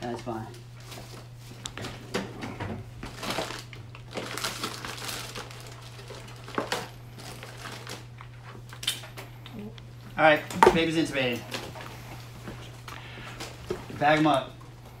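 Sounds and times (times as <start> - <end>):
plastic rustling: 0.2 - 2.1, 2.9 - 8.9.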